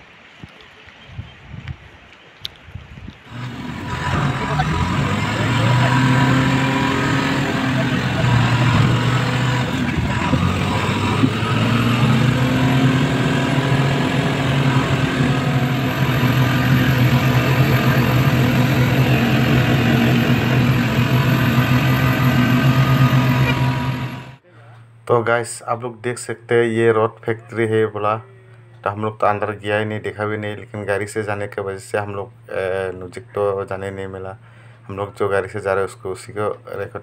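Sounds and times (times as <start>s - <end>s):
road noise inside truck: 3.2s - 25.1s
truck engine running: 3.3s - 24.4s.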